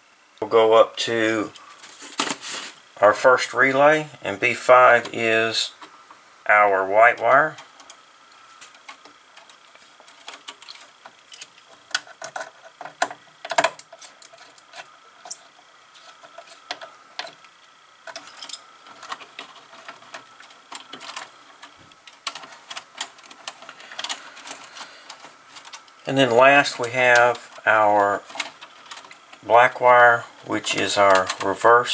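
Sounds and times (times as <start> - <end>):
wire clicks and scrapes: 7.3 - 31.6.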